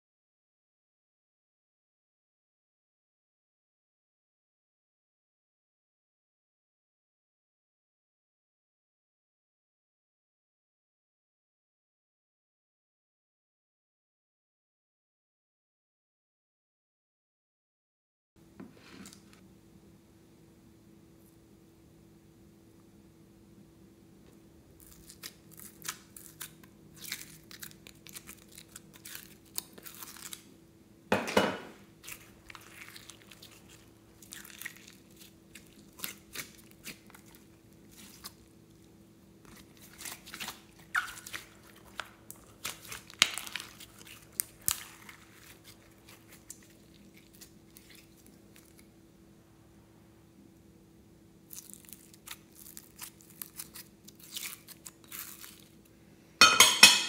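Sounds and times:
slime crackling and popping: 0:39.5 - 0:48.8, 0:51.5 - 0:55.7.

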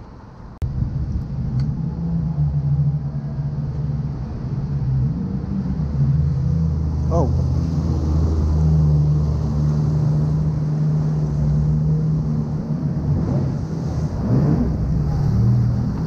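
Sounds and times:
jet ski engine passing: 0:00.7 - 0:16.0.

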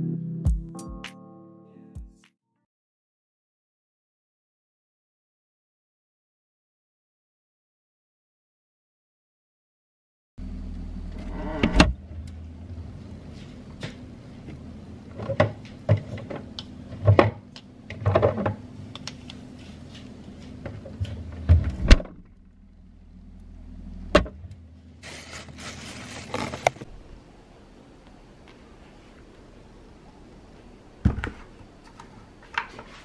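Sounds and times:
refrigerator hum: 0:10.4 - 0:33.0.

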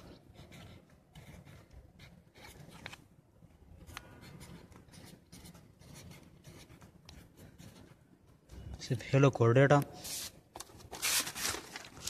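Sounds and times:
pen scratching on paper: 0:00.0 - 0:03.0, 0:03.8 - 0:08.4.

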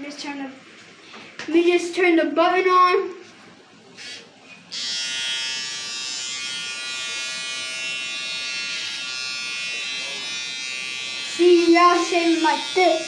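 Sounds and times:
electric shaver buzzing: 0:04.0 - 0:13.0.

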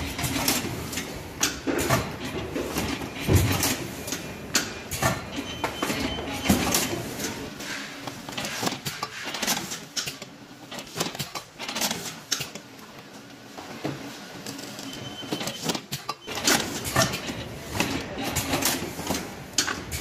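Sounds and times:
banding machine clicking and clattering: 0:08.2 - 0:12.7.

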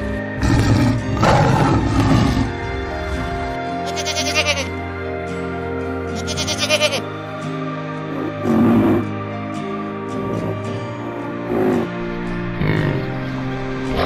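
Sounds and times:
background music: 0:00.0 - 0:14.0
goats bleating: 0:03.8 - 0:04.8, 0:06.1 - 0:07.1.

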